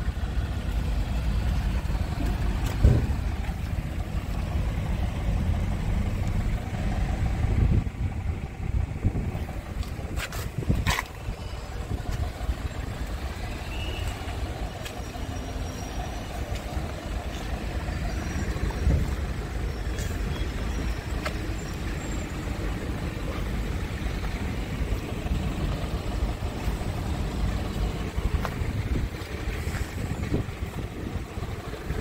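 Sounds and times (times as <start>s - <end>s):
wind buffeting microphone: 7.2s - 13.0s, 25.2s - 32.0s.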